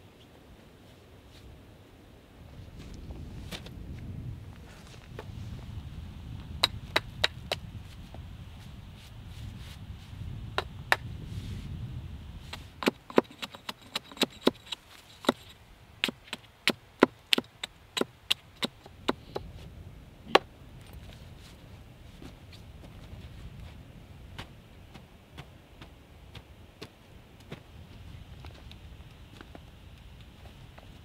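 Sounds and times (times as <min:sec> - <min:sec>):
wood chopping strikes: 0:12.5 - 0:19.5.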